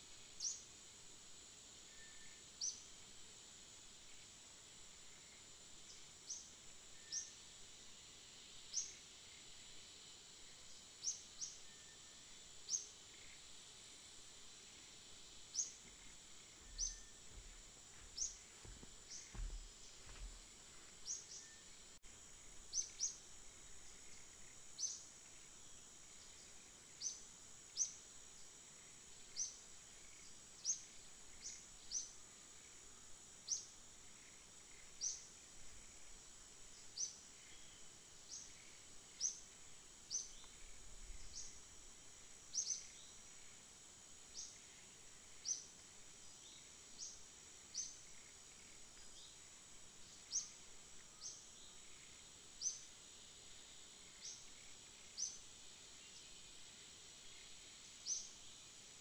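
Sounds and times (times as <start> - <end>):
faint high-pitched hiss: 0.0 - 59.0
small bird chirping: 15.5 - 20.4.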